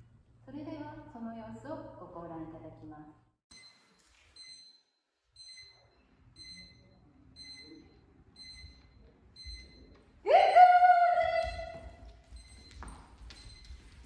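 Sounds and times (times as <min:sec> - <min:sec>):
kitchen timer beeping: 0:03.5 - 0:09.9.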